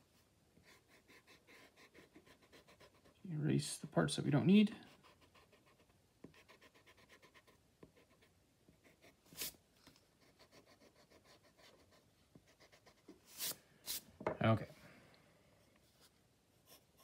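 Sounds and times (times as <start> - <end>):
pencil scratching on paper: 0.6 - 3.2, 4.8 - 9.6, 10.2 - 14.0, 16.0 - 17.0
eraser rubbing on paper: 8.9 - 9.6, 12.6 - 14.0.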